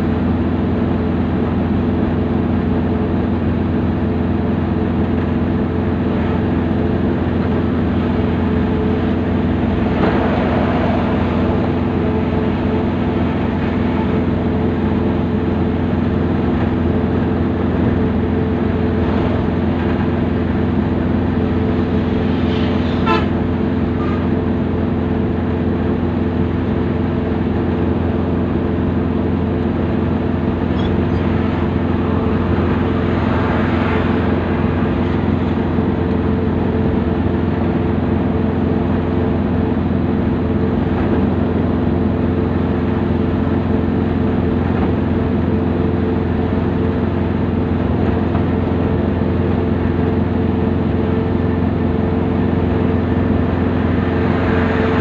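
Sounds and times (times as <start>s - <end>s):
moving vehicle drone: 0.0s - 55.0s
short horn toot: 22.5s - 23.4s.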